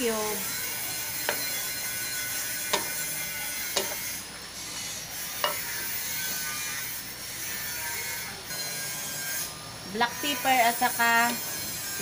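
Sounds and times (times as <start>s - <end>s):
meat sizzling: 0.0s - 8.3s
wooden spatula knocking wok: 1.2s - 1.8s, 2.6s - 3.0s, 3.7s - 4.1s, 5.4s - 5.9s.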